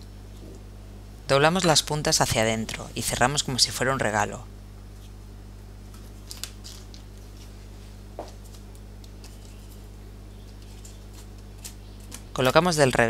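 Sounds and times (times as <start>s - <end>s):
low electrical hum: 0.0s - 13.0s
hands handling pastry on paper: 5.9s - 12.2s.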